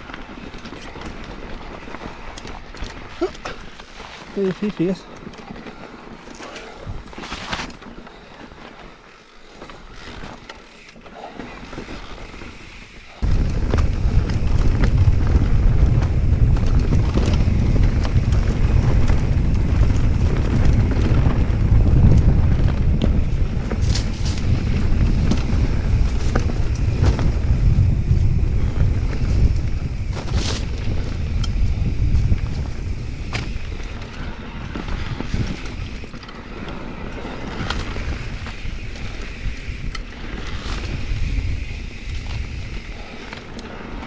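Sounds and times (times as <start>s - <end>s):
bike rattling over stones: 0.0s - 44.0s
wind buffeting microphone: 11.2s - 44.0s.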